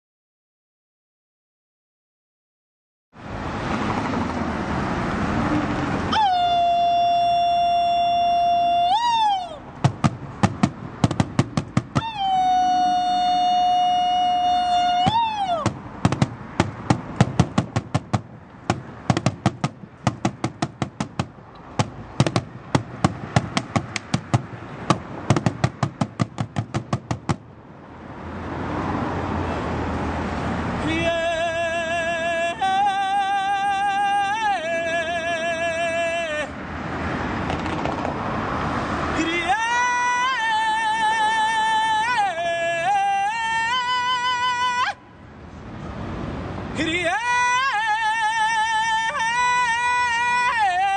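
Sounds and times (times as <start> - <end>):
man singing high notes: 6.1 - 9.7, 11.8 - 15.8, 30.8 - 36.6, 39.2 - 45.0, 46.8 - 50.9
sticks striking large drum: 9.8 - 12.0, 15.6 - 27.4.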